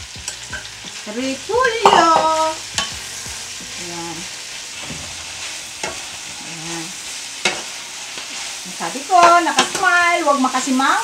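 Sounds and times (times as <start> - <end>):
food sizzling in a pan: 0.0 - 11.0
spatula knocking on pan: 1.6 - 3.8.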